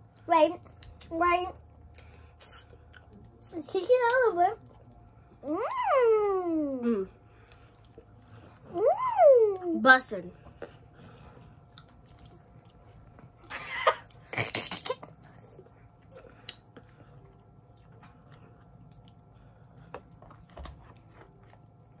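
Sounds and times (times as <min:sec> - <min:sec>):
person chewing crunchy candy: 0:00.0 - 0:03.4, 0:07.2 - 0:08.8, 0:10.4 - 0:22.0.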